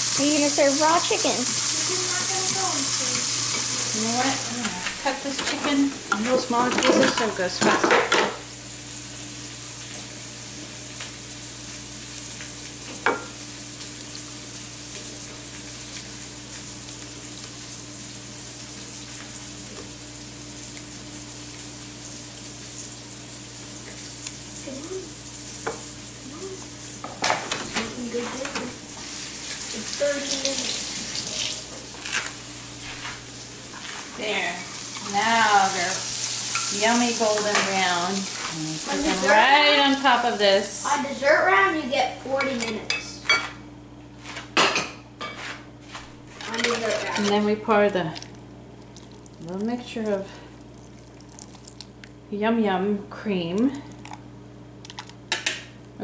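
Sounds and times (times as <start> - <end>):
kitchen faucet running: 0.0 - 8.4, 27.8 - 32.0, 32.7 - 42.8, 46.5 - 51.8
onion sizzling in a frying pan: 0.0 - 42.4.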